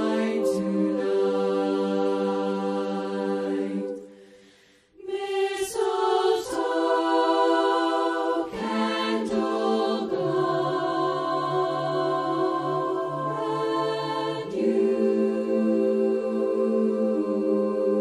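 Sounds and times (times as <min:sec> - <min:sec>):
women's choir singing in harmony: 0:00.0 - 0:18.0.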